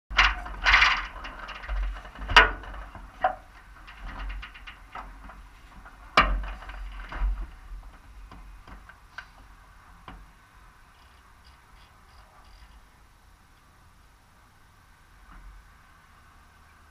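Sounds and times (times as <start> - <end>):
clunks clicks and rustling: 0.1 - 10.3.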